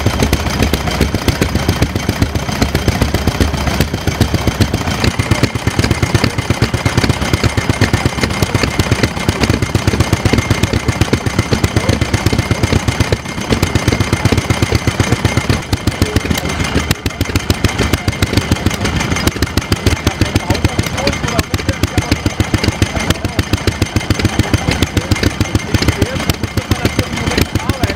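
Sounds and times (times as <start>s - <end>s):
stationary engine running: 0.0s - 27.9s.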